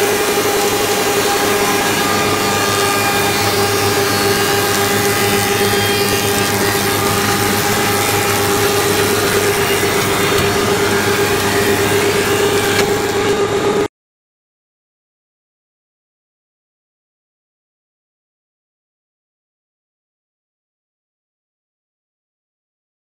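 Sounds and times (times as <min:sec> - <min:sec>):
cutter heads humming: 0:00.0 - 0:13.9
wood being cut: 0:00.0 - 0:13.9.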